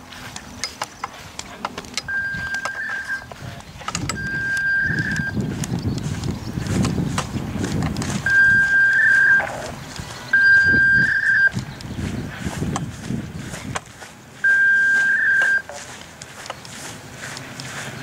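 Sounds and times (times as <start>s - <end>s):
high electronic beeps: 2.0s - 3.4s, 4.1s - 5.4s, 8.2s - 9.7s, 10.3s - 11.8s, 14.4s - 15.8s.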